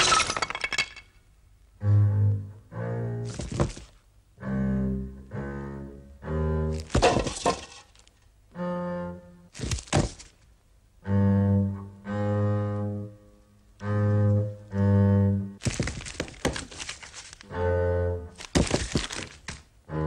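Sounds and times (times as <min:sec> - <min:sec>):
low bowed strings: 0:01.7 - 0:03.5, 0:04.3 - 0:09.6, 0:10.9 - 0:15.6, 0:17.4 - 0:18.5, 0:19.8 - 0:20.0.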